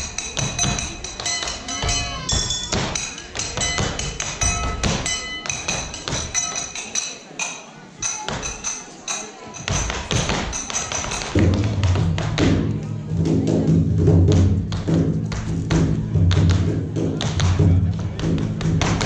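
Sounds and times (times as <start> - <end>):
ringing metallic clinks: 0.0 - 11.4.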